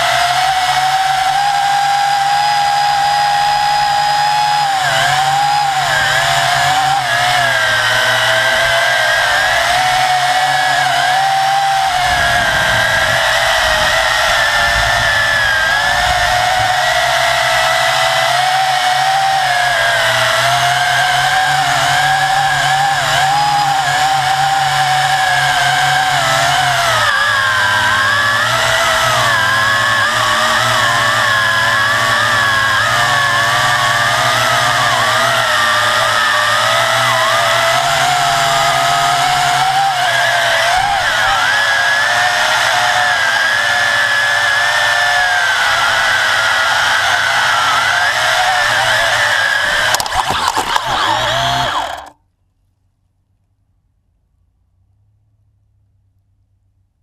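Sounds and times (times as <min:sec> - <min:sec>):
drone motors and propellers whining: 0:00.0 - 0:52.2
low rumble: 0:11.8 - 0:17.7.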